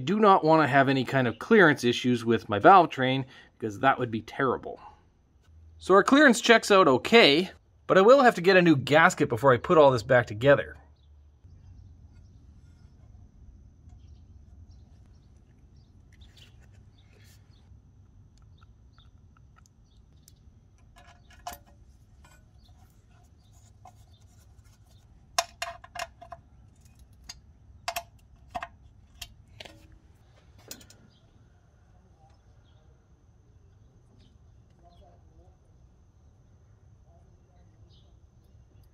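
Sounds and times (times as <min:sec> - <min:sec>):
faint steady hum: 0:00.0 - 0:38.9
metallic clinks of engine parts: 0:20.8 - 0:22.9, 0:30.5 - 0:31.2.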